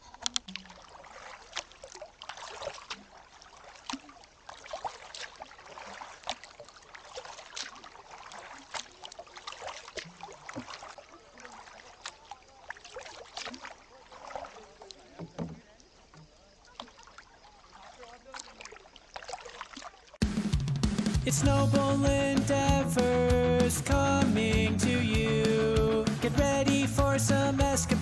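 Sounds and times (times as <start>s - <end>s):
water dripping off paddle: 0.0s - 20.2s
paddle splashing in water: 0.0s - 20.3s.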